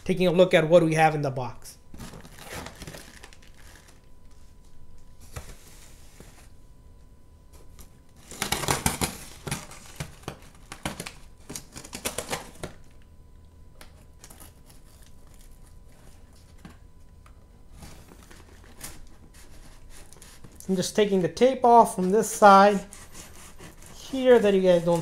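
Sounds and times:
packing tape ripping off cardboard: 0:02.0 - 0:04.0, 0:08.1 - 0:12.9, 0:22.6 - 0:25.0.

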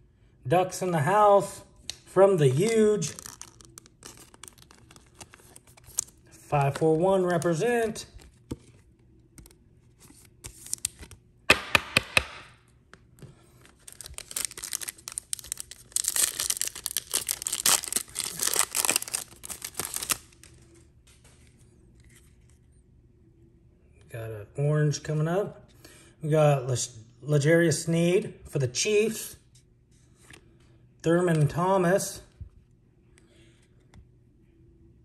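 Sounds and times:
foil wrapper tearing and crinkling: 0:02.6 - 0:06.2, 0:13.7 - 0:20.5.

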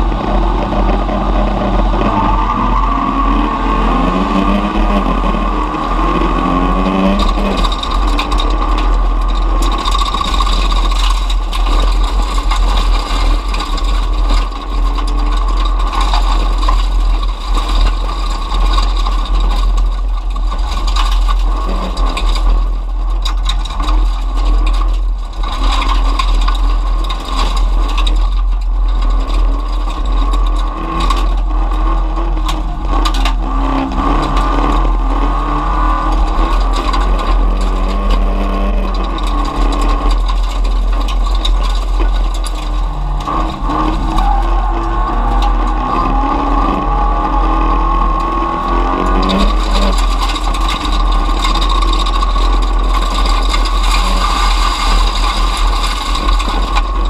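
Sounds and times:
heavy low rumble: 0:00.0 - 0:57.0
race car engine revving: 0:00.0 - 0:57.0
cabin rattles and gravel scrapes: 0:06.6 - 0:57.0.

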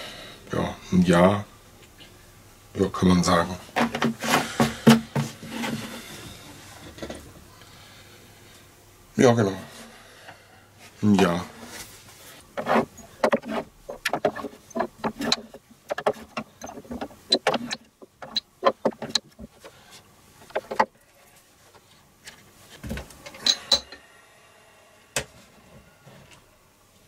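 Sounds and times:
shot glasses clinking: 0:23.4 - 0:24.0.

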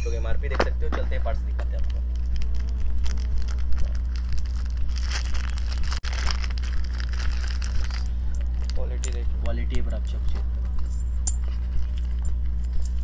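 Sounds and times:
steady low hum: 0:00.0 - 0:13.0
packaging crinkling and tearing: 0:01.7 - 0:09.2.

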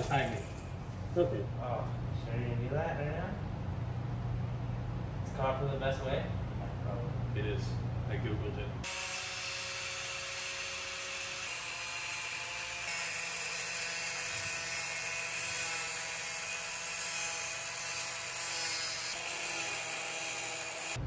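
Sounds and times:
angle grinder cutting: 0:00.0 - 0:00.7, 0:08.8 - 0:21.0.

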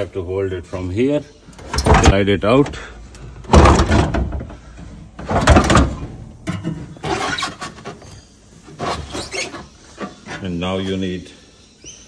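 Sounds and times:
metal battery scraping: 0:05.2 - 0:10.8.

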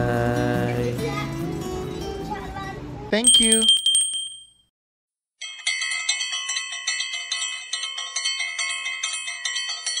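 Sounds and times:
bell-like chimes ringing: 0:03.2 - 0:04.6, 0:05.4 - 0:10.0.

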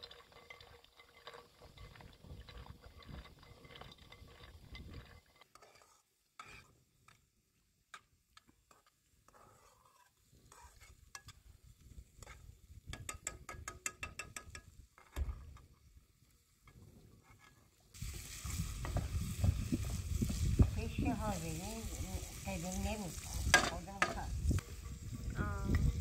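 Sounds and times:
spoon scraping metal pan: 0:02.9 - 0:06.7, 0:08.7 - 0:11.4, 0:17.2 - 0:25.8
onions sizzling in oil: 0:17.8 - 0:26.0.

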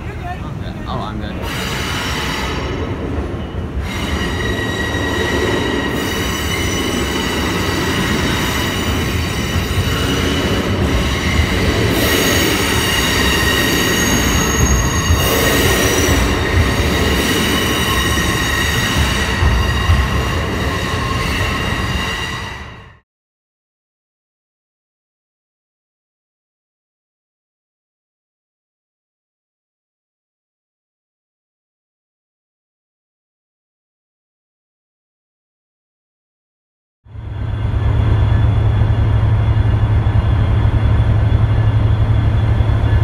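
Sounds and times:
low rumble of train cars: 0:00.0 - 0:23.0, 0:37.0 - 0:43.0
train wheels squealing on rails: 0:01.2 - 0:23.0, 0:37.1 - 0:43.0.

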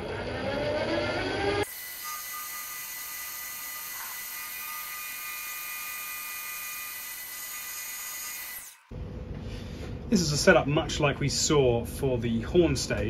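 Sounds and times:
milling machine whine: 0:00.0 - 0:09.0.

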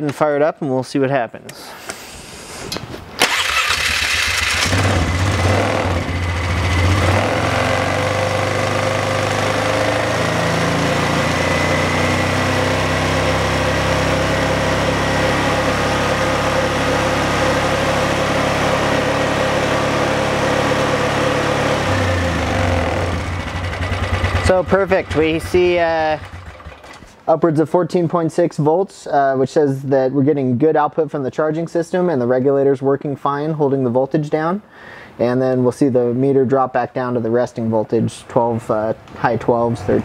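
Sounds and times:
atv engine starting and idling: 0:03.2 - 0:27.2.

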